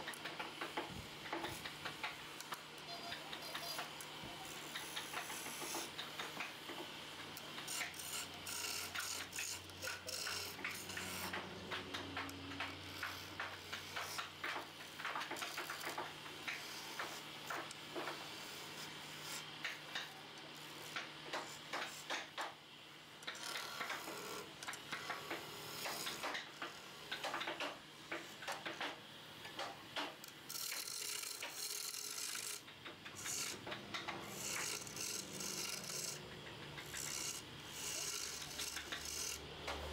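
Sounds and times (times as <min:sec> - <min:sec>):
chisel scraping wood on lathe: 0:02.9 - 0:06.4, 0:07.6 - 0:22.3, 0:23.2 - 0:27.3, 0:30.0 - 0:39.9
lathe motor hum: 0:30.5 - 0:39.9.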